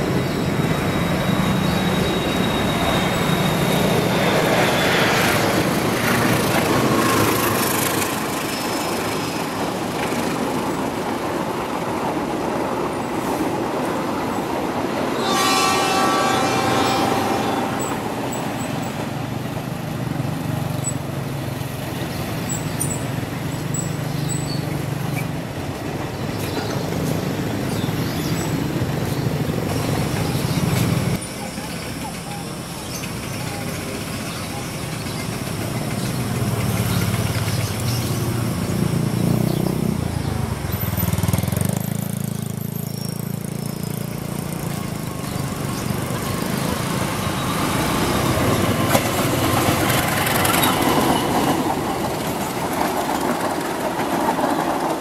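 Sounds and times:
train running on rails: 0.0s - 55.0s
train horn: 15.1s - 18.6s.

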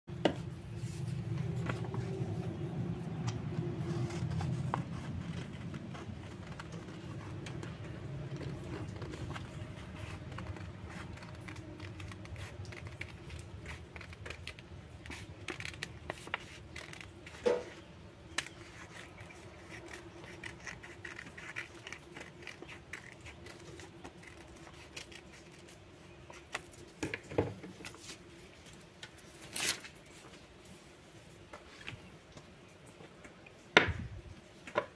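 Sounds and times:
paper rustling: 0.2s - 30.9s
scissors snipping paper: 3.2s - 26.8s.

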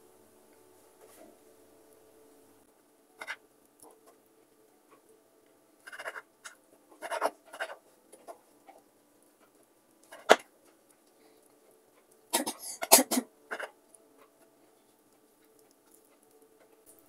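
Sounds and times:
loud coughs: 12.4s - 13.3s.

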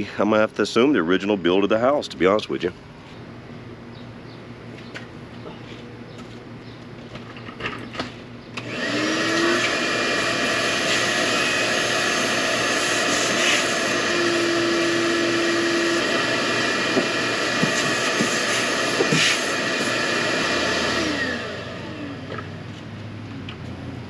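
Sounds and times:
motor-driven machine running: 8.6s - 22.5s.

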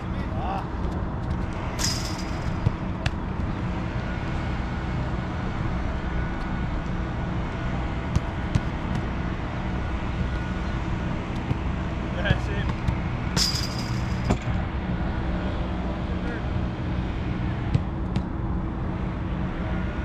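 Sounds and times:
low outdoor rumble: 0.0s - 20.0s
soccer balls being kicked: 2.4s - 3.6s, 7.5s - 13.5s, 17.6s - 18.4s.

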